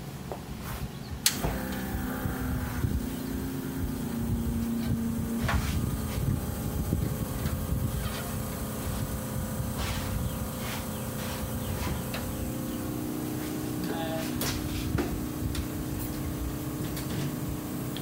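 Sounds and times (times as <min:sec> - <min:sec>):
electric motor humming: 0:01.3 - 0:18.0
low uneven rumble: 0:01.4 - 0:18.0.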